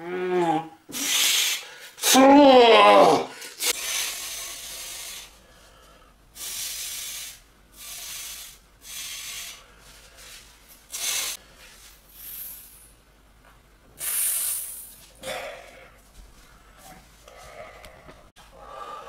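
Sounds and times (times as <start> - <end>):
man hissing breaths straining: 0.9 - 2.2, 3.2 - 5.4, 6.4 - 11.4, 14.0 - 15.8.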